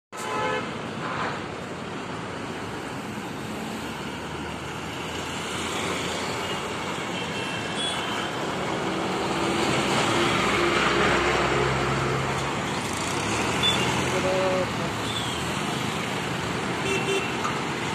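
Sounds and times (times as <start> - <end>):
cars driving past: 8.3 - 17.9.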